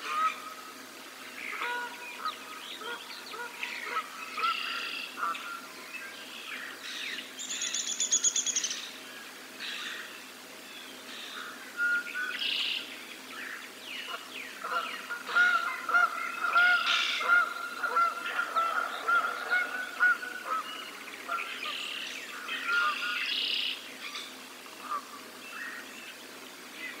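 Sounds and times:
songbirds chirping: 0.7 - 27.0
geese honking: 1.4 - 5.6, 14.1 - 23.6.

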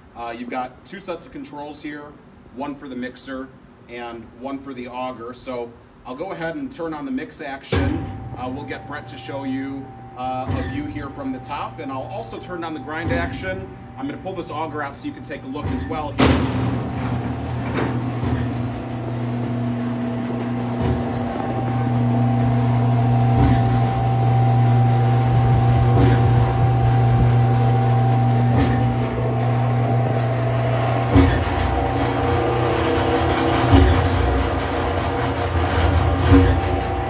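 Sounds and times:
electric motor hum: 16.3 - 37.0
knocks: 30.5 - 37.0.

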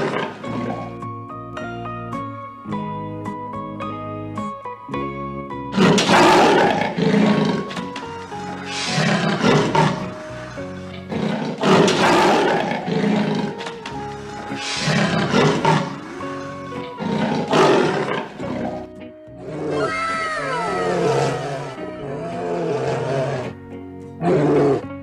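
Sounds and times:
big cat growling roars: 0.0 - 1.0, 5.7 - 19.9, 20.8 - 23.6, 24.2 - 25.0
background music with steady notes: 0.0 - 25.0.

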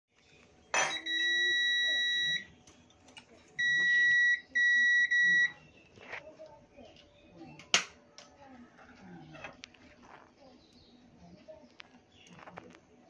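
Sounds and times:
continuity buzzer beeping: 3.6 - 5.5.

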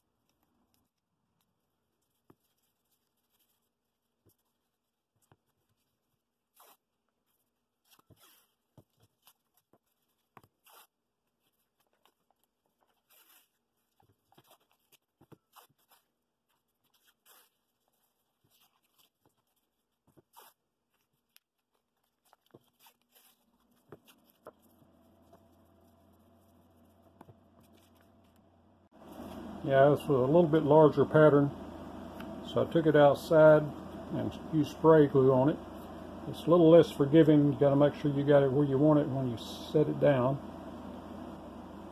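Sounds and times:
faint rasps and rubs: 0.0 - 31.4
low steady hum: 22.2 - 41.9.

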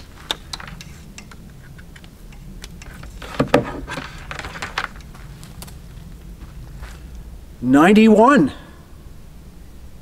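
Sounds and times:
cable and connectors clicking: 0.0 - 5.8
knocks: 3.2 - 4.1.

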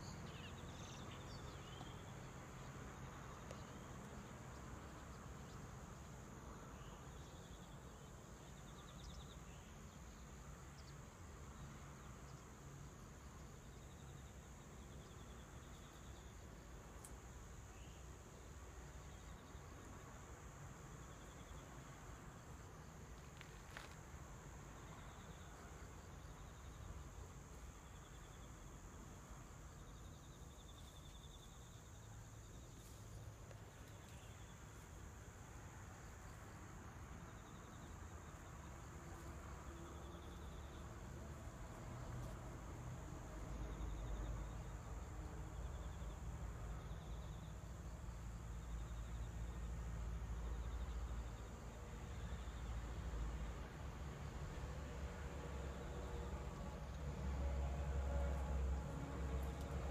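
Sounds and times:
crickets chirping: 0.0 - 59.9
steady high-pitched hiss: 0.0 - 59.9.

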